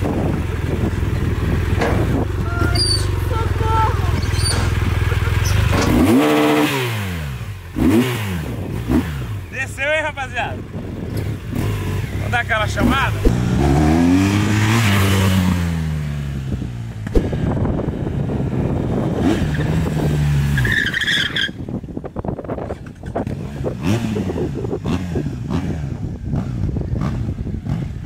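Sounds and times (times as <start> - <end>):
motorcycle engine revving: 0.0 - 28.0
brief high squeal: 2.6 - 3.2, 4.2 - 4.8.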